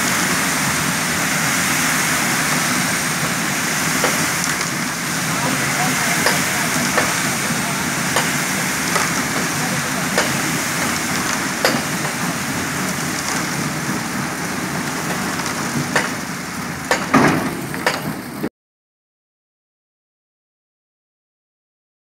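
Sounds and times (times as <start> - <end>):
concrete mixer rushing: 0.0 - 18.5
sharp knocks: 8.1 - 9.6, 11.6 - 12.2, 15.9 - 16.2, 16.9 - 18.1.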